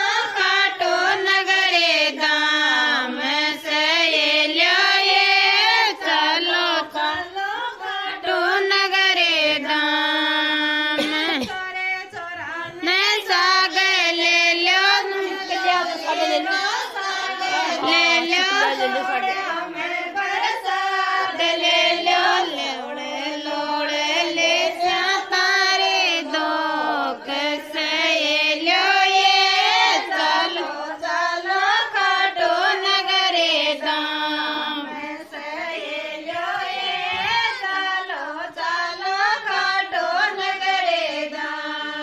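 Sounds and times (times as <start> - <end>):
woman singing folk song: 5.6 - 16.8.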